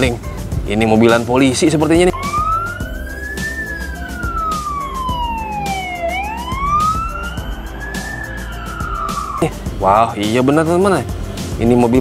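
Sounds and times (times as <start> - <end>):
police siren wailing: 2.1 - 9.5.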